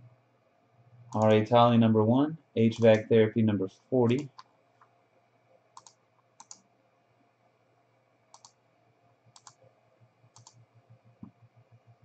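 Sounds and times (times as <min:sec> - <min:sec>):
faint computer mouse clicks: 0:05.8 - 0:06.6, 0:08.3 - 0:08.6, 0:09.4 - 0:09.6, 0:10.3 - 0:10.6.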